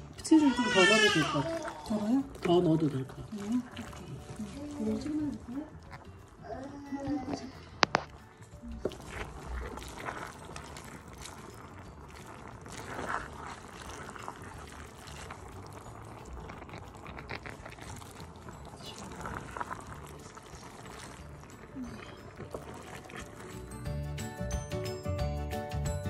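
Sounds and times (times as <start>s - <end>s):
wet squishing of noodles: 0.0s - 24.7s.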